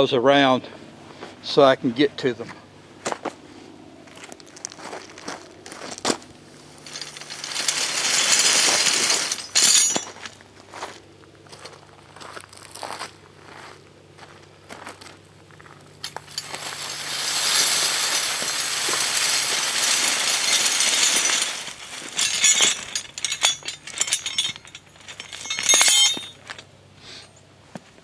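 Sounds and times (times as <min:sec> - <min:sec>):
metal clanks and clinks: 0:06.7 - 0:10.4, 0:16.0 - 0:26.8.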